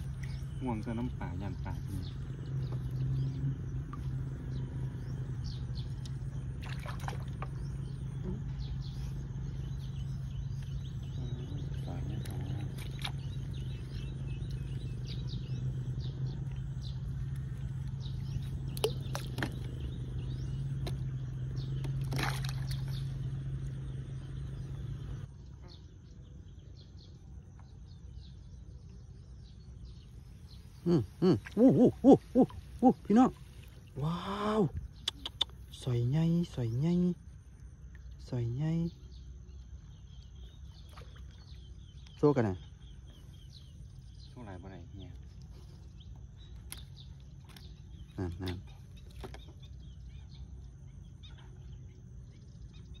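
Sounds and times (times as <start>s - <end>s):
bird chirps: 0.0s - 53.0s
steady low hum: 0.0s - 53.0s.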